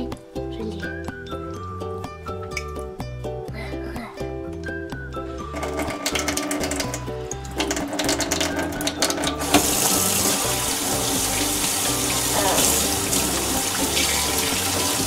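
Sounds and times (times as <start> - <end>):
background music: 0.0 - 15.0
tap water pouring into steel sink: 5.6 - 15.0.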